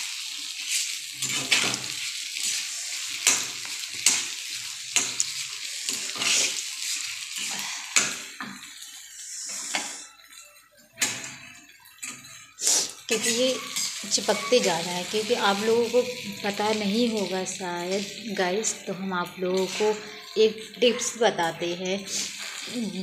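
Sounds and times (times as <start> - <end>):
food sizzling in pan: 0.0 - 23.0
spatula scraping pan: 0.7 - 8.3, 12.0 - 16.6, 19.6 - 21.2.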